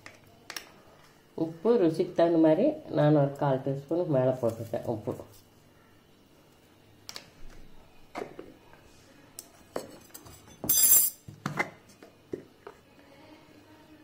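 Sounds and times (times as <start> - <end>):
kitchen utensils clinking: 9.7 - 11.3.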